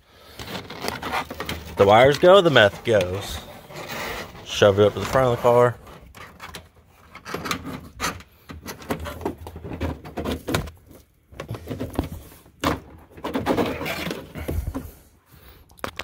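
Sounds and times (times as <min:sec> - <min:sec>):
hose and wires scraping under trim: 0:00.1 - 0:10.3, 0:13.2 - 0:15.1.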